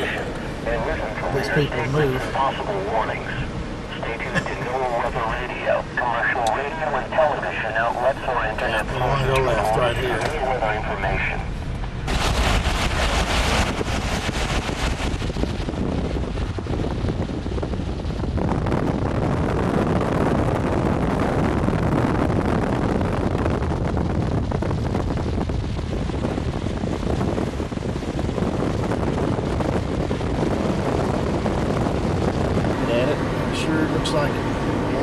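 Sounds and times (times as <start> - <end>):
car road noise: 0.0 - 35.0
wind rushing over microphone: 0.0 - 35.0.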